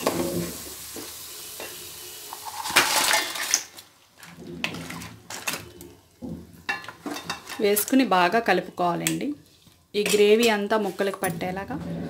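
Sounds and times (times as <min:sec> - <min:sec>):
gravy sizzling in a pot: 0:00.0 - 0:04.2
crab pieces clattering into pot: 0:02.3 - 0:06.0.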